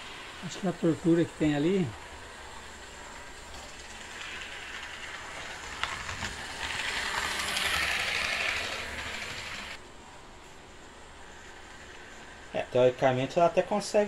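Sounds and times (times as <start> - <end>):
model locomotive motor whirring: 0.0 - 9.8, 11.2 - 14.0
wheels clicking on track: 0.0 - 9.8, 11.3 - 14.0.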